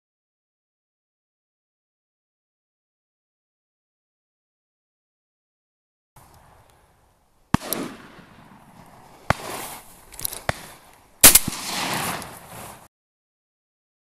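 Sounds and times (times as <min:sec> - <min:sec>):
shotgun shots: 0:07.5 - 0:09.8, 0:10.4 - 0:12.6.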